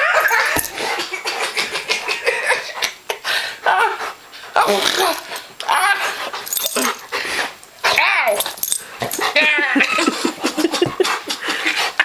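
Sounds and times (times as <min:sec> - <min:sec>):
person laughing: 0:09.2 - 0:12.0.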